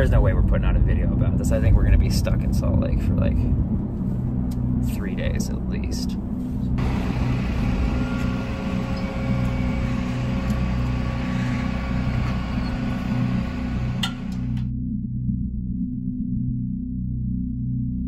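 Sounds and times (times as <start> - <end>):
faint whining tones: 6.6 - 14.7
tow truck engine rumble: 6.8 - 14.7.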